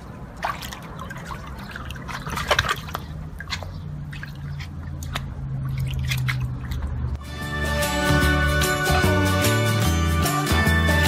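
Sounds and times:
water splashing in a pool: 0.0s - 7.2s.

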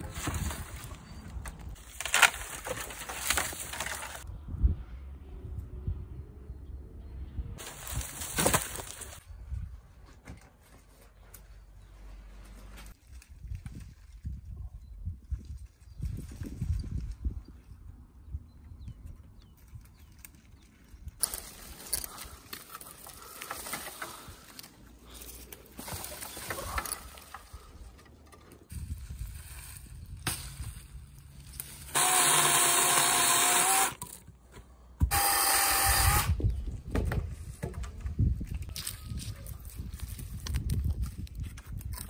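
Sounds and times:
small motorised tool whining: 31.9s - 34.0s.

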